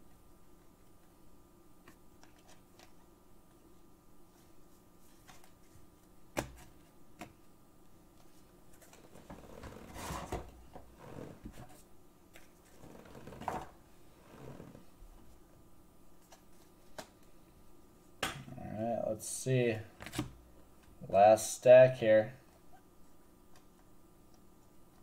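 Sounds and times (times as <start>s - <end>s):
rustling and knocking of cards: 4.3s - 7.5s.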